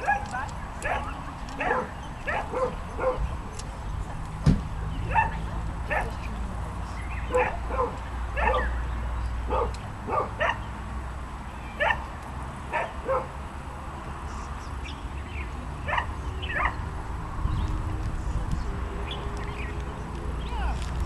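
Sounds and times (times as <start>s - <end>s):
dog yipping barks: 0.0s - 3.3s, 5.1s - 6.2s, 7.3s - 8.8s, 9.5s - 10.6s, 11.8s - 12.0s, 12.7s - 13.3s, 15.9s - 16.8s.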